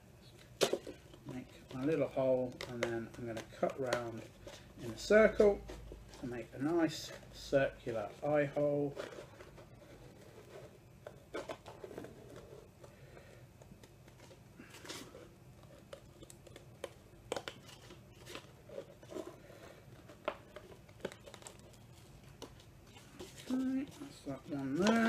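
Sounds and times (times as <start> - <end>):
paper plate crackling: 13.8 - 25.0.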